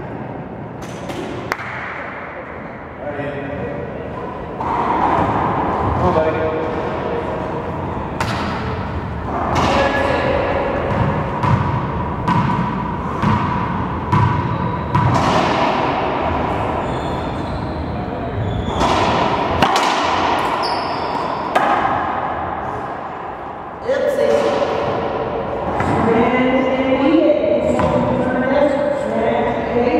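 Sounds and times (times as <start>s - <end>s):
racquetball smacks echoing: 0.8s - 2.2s, 8.2s - 10.1s, 10.8s - 16.3s, 18.7s - 22.4s.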